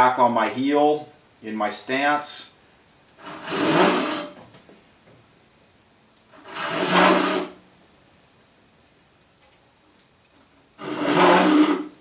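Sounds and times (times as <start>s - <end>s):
hand saw cutting stroke: 3.2s - 4.4s, 6.4s - 7.6s, 10.8s - 12.0s.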